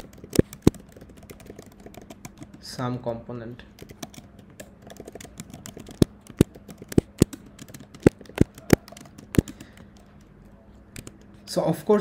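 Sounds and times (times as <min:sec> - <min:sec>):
keyboard typing clicks: 0:00.0 - 0:02.7, 0:03.8 - 0:10.3, 0:11.0 - 0:11.3.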